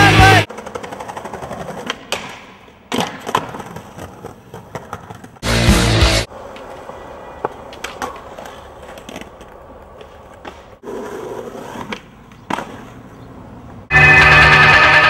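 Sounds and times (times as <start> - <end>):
loud music: 0.0 - 0.5, 5.4 - 6.3, 13.9 - 15.0
skateboard wheels rolling on pavement: 0.2 - 14.6
skateboard clacks: 0.5 - 5.4, 6.3 - 13.8.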